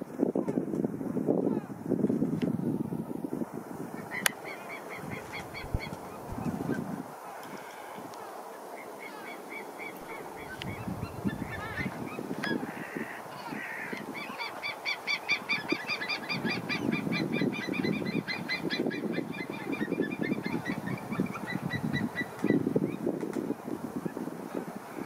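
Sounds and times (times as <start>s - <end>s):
eagles yelping: 7.2s - 22.4s.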